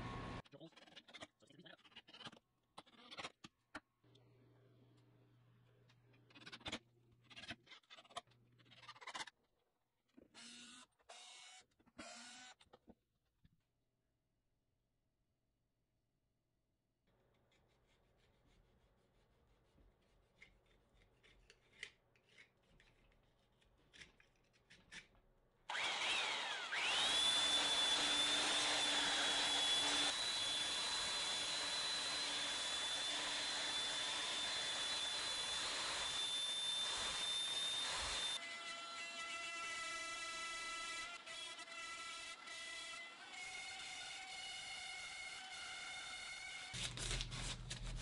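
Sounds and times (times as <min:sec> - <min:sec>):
belt sander whining: 0:25.7 - 0:38.4.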